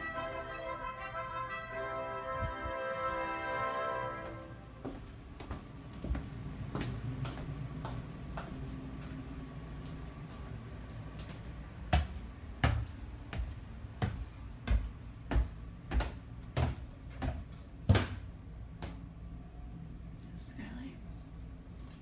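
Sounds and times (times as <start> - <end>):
footsteps on wooden stairs: 4.8 - 9.2, 9.8 - 19.0.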